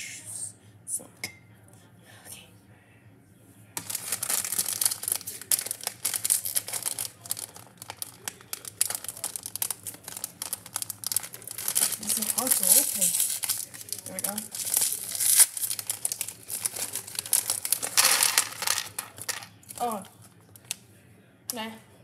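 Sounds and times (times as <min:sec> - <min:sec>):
plastic bag crinkling: 0:03.8 - 0:20.8.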